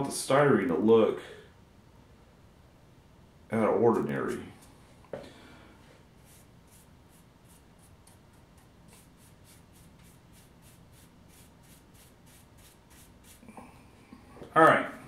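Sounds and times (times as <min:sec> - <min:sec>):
paintbrush sweeping dirt: 0:06.2 - 0:08.1, 0:08.9 - 0:13.5.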